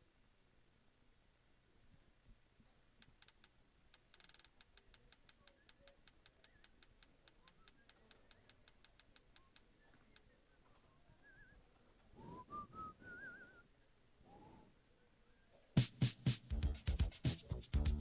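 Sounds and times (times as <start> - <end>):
sharp clicks: 3.0 - 10.3.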